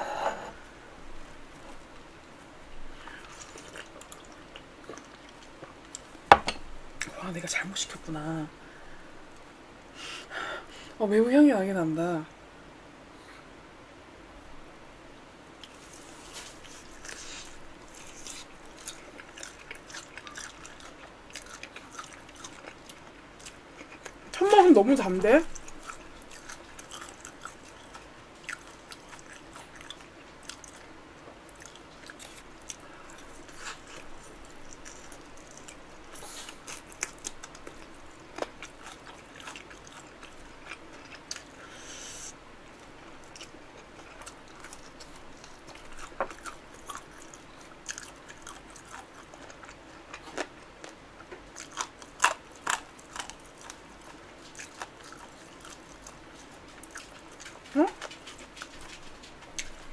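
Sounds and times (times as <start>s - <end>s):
crunching and chewing fried chicken: 1.6s - 6.2s, 15.6s - 59.9s.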